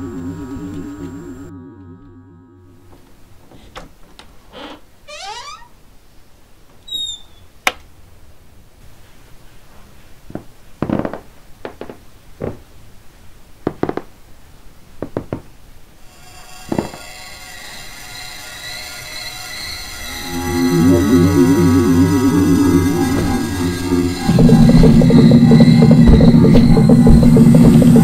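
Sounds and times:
low held music drone: 0.0s - 3.6s, 16.2s - 28.0s
creaks and squeaks: 3.5s - 5.8s, 6.8s - 7.6s, 16.1s - 28.0s
sharp knocks: 23.2s - 28.0s.

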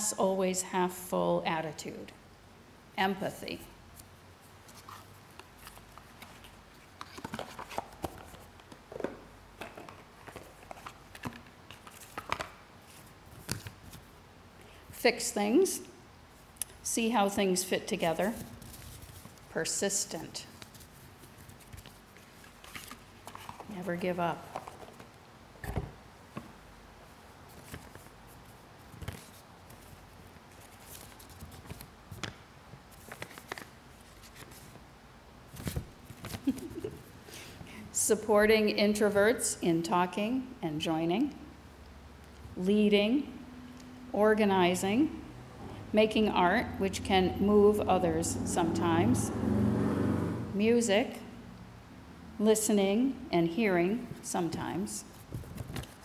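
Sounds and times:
paper rustling and crackling: 4.6s - 8.8s, 9.6s - 14.1s, 18.3s - 19.5s, 20.5s - 23.7s, 27.5s - 34.8s, 55.1s - 56.0s.

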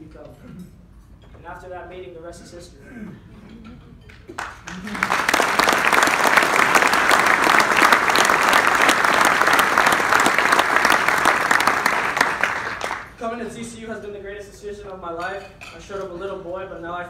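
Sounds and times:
audience applause: 4.4s - 13.2s.

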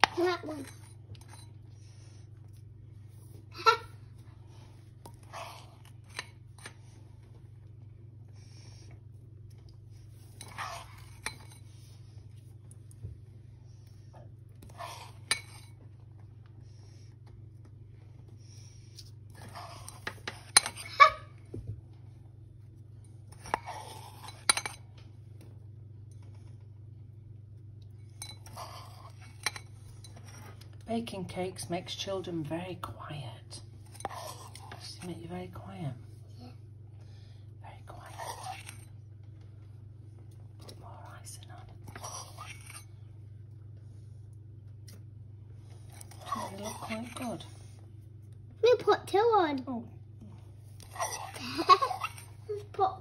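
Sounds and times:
spoon scraping mixing bowl: 0.0s - 2.7s, 4.9s - 7.1s, 9.6s - 12.4s, 14.6s - 16.0s, 18.9s - 20.9s, 23.3s - 24.9s, 28.0s - 30.8s, 33.6s - 35.8s, 38.0s - 39.0s, 41.8s - 43.1s, 45.8s - 47.6s
steady low hum: 0.0s - 53.0s.

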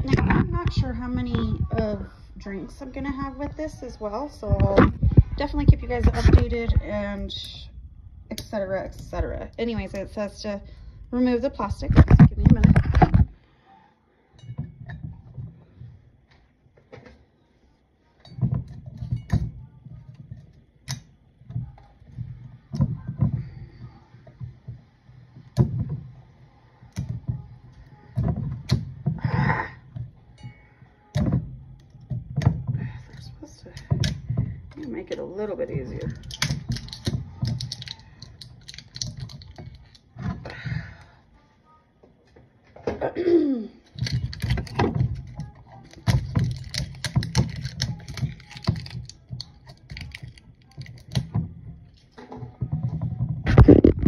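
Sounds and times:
plastic wrap crinkling: 36.0s - 40.0s, 43.8s - 51.3s.

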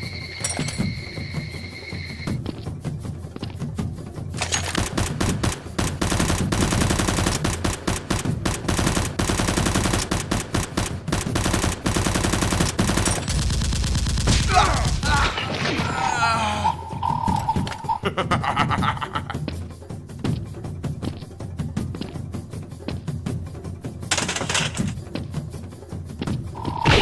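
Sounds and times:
rapid automatic gunfire: 4.8s - 14.6s.

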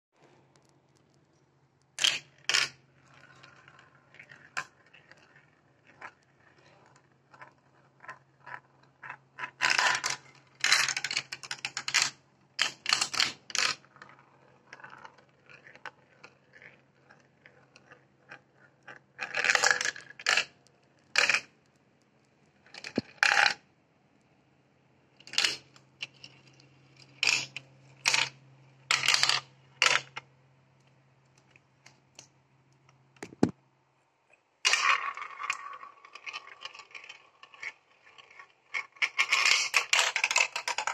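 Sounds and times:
marble rolling: 0.2s - 23.7s, 25.1s - 33.6s, 34.6s - 40.9s
marble clattering through plastic tubes: 2.0s - 21.6s, 22.6s - 23.6s, 25.2s - 30.3s, 34.6s - 40.9s.

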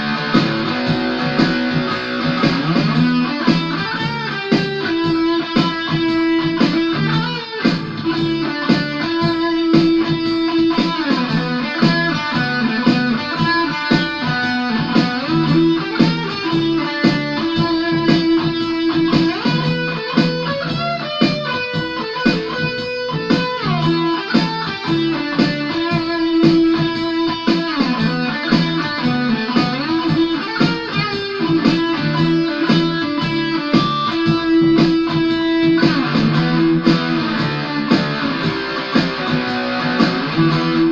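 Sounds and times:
electric guitar lead lines: 0.0s - 40.9s.

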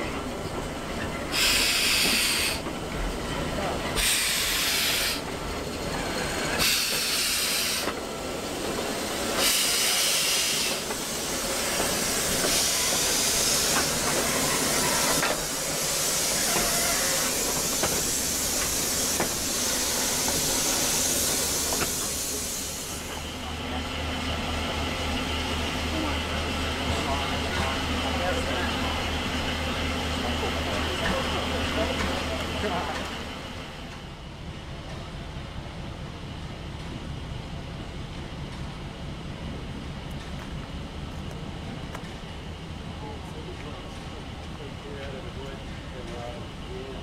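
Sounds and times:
steam locomotive hissing: 0.0s - 34.2s.

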